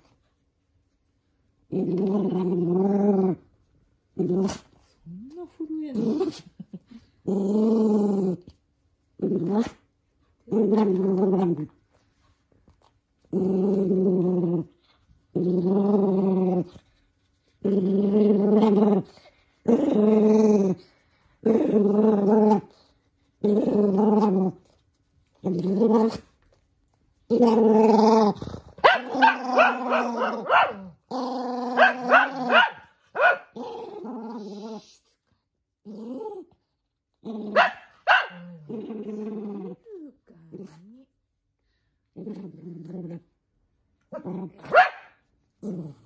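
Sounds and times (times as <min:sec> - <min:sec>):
dog growling: 0:01.7 - 0:03.5, 0:04.2 - 0:08.6, 0:09.2 - 0:09.9, 0:10.5 - 0:11.8, 0:13.2 - 0:17.0, 0:17.6 - 0:24.8, 0:27.3 - 0:32.8, 0:33.5 - 0:35.1, 0:35.8 - 0:36.6, 0:37.2 - 0:41.1, 0:42.1 - 0:43.4, 0:44.1 - 0:44.8, 0:45.6 - 0:46.0
dog barking: 0:28.8 - 0:30.9, 0:31.8 - 0:33.6, 0:37.6 - 0:38.4, 0:44.7 - 0:45.2.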